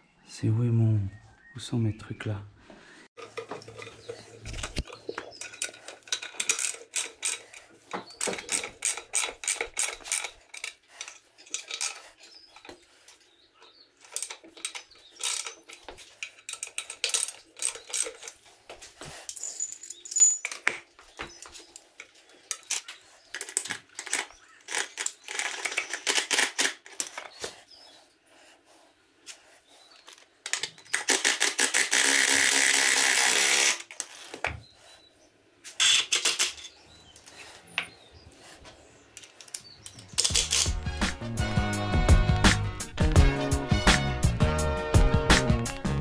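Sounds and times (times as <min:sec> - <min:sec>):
metal tools clinking: 0:03.2 - 0:27.4, 0:35.8 - 0:37.9, 0:39.2 - 0:40.8.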